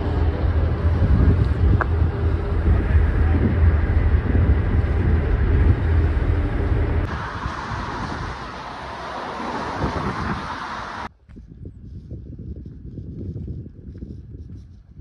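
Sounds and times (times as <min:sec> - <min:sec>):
ferry engine humming: 0:00.0 - 0:11.1
wind on microphone: 0:00.0 - 0:15.0
water rushing: 0:01.8 - 0:11.1.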